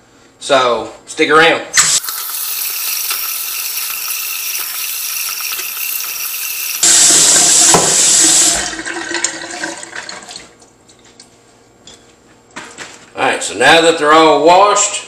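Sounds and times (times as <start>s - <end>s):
faucet running into a metal sink: 2.0s - 10.5s.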